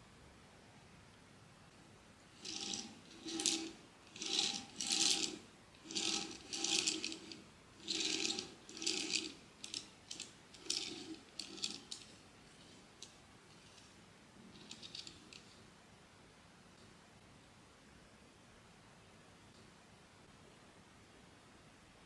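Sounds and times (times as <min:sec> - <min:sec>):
plastic toy base clicking and grinding: 0:02.4 - 0:13.9, 0:14.6 - 0:15.6.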